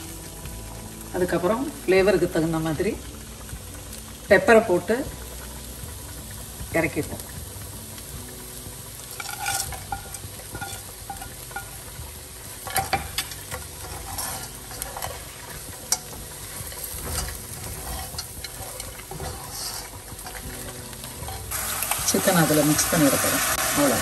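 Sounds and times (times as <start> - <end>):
chicken sizzling in a pan: 0.0 - 24.0
utensil scraping a pan: 9.1 - 24.0.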